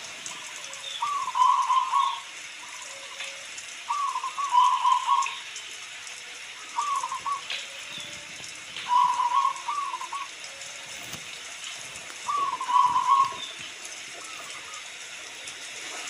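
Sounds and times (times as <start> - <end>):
rain hissing: 0.0 - 16.0
dove cooing: 0.3 - 5.5, 6.7 - 11.3, 12.2 - 15.1.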